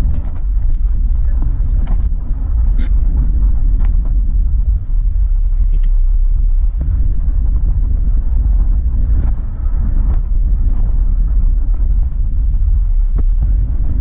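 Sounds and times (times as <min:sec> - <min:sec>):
car engine and road noise: 0:00.0 - 0:14.0
wind buffeting microphone: 0:00.0 - 0:14.0.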